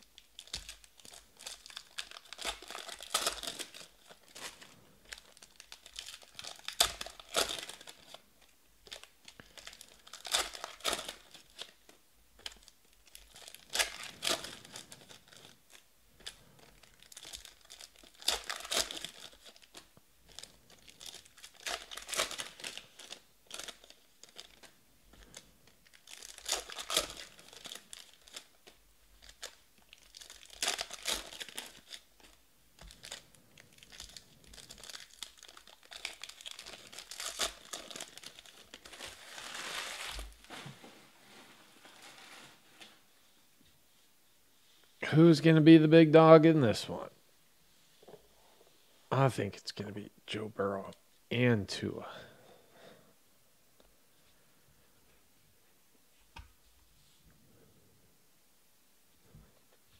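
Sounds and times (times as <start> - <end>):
card pack wrappers tearing and crinkling: 0.0 - 8.2, 8.8 - 40.7.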